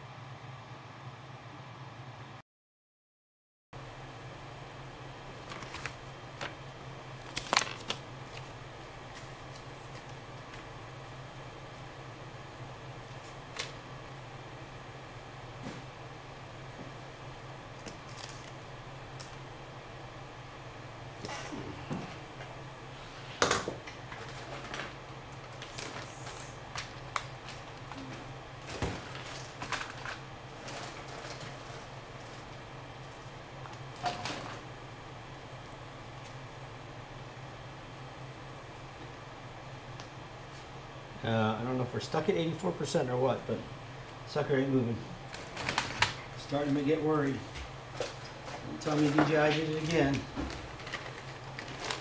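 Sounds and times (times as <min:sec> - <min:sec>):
low electrical hum: 0:00.0 - 0:02.4, 0:03.8 - 0:52.0.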